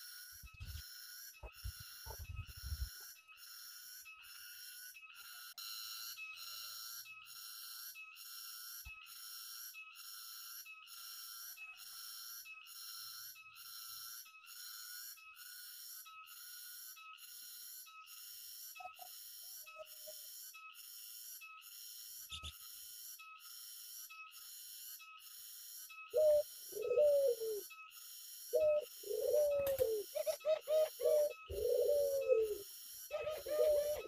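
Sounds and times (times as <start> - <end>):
high pulsing buzz: 0.0 - 3.2, 26.1 - 27.8, 28.4 - 34.0
doves cooing: 26.1 - 27.7, 28.5 - 34.0.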